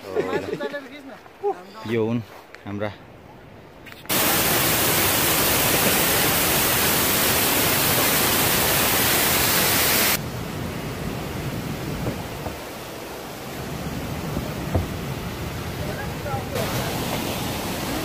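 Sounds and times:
waterfall rushing: 0:04.1 - 0:18.0.

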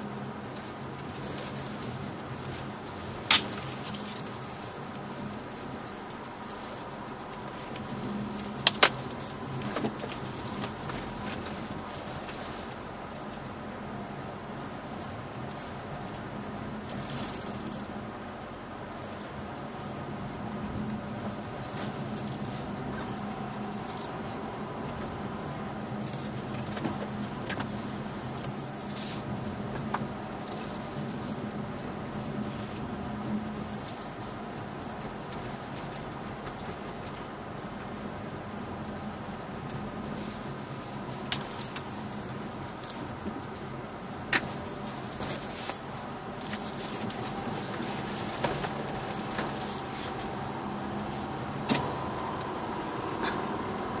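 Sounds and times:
car engine and tyres humming: 0:00.0 - 0:54.0.

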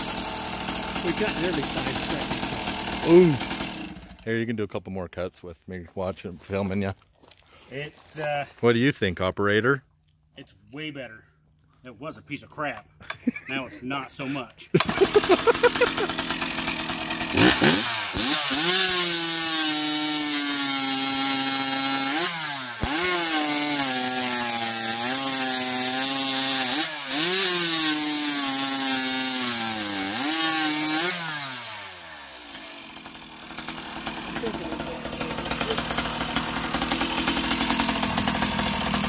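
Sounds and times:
chainsaw cutting through log: 0:00.0 - 0:04.5, 0:14.8 - 0:39.0.

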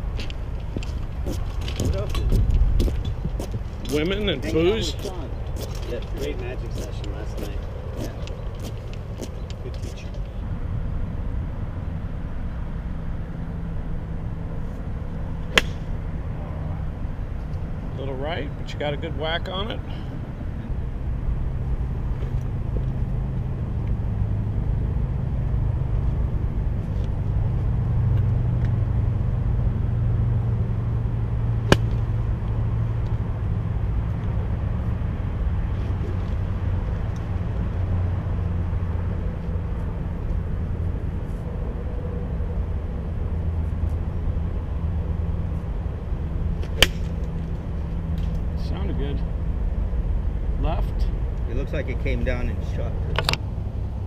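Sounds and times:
distant traffic rumble: 0:00.0 - 0:54.0
golf club striking ball: 0:15.5 - 0:16.0, 0:31.6 - 0:32.2, 0:46.6 - 0:47.3.

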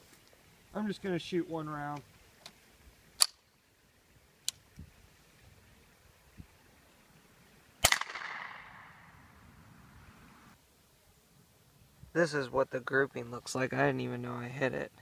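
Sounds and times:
rifle clicks: 0:03.2 - 0:03.4
rifle shot ringing out: 0:07.8 - 0:09.0.

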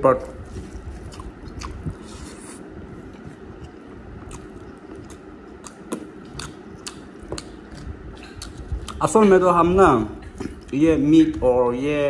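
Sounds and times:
chewing and wet mouth clicks: 0:01.1 - 0:02.0, 0:03.6 - 0:09.0.

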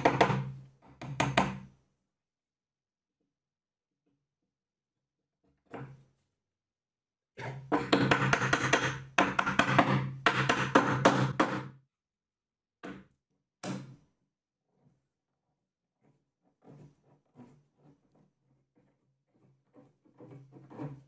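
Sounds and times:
mallet tapping on plywood: 0:00.0 - 0:01.7, 0:07.7 - 0:11.8
knocks on wood: 0:07.7 - 0:11.7.

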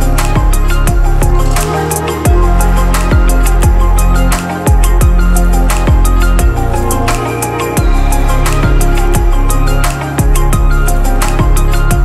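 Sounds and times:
deep bass line: 0:00.0 - 0:12.0
electronic music: 0:00.0 - 0:12.0
kick-drum beat: 0:00.4 - 0:01.6, 0:02.3 - 0:04.0, 0:04.7 - 0:06.7, 0:07.8 - 0:09.6, 0:10.2 - 0:12.0.

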